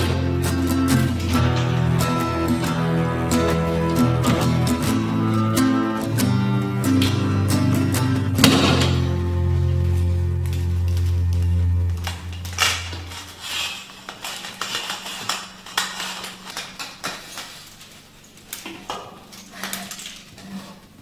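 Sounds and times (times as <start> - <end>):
background music: 0.0 - 13.7.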